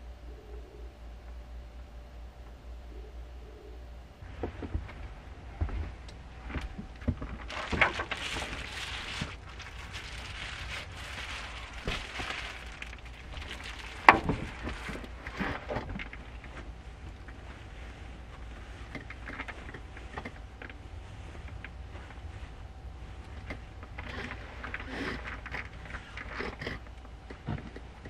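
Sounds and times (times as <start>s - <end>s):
low rumble: 2.8s - 26.2s
cloth rustling: 4.3s - 26.4s.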